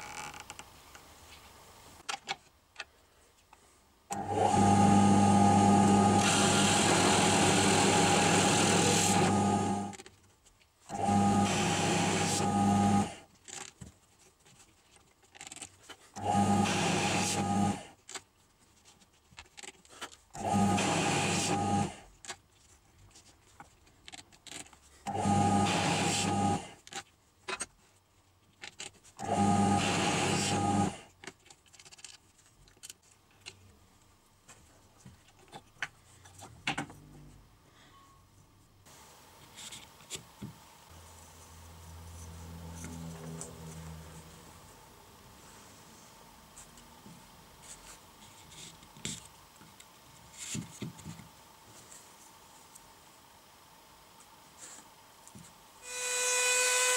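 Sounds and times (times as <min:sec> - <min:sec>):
drill press bit grinding wood: 0:04.1 - 0:10.0, 0:10.9 - 0:13.2, 0:16.2 - 0:17.8, 0:20.4 - 0:22.0, 0:25.1 - 0:26.8, 0:29.2 - 0:31.1, 0:55.8 - 0:56.9.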